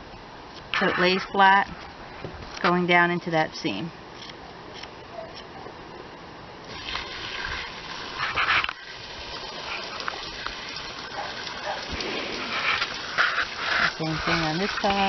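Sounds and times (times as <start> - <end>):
shears snipping fur: 11.2 - 15.0.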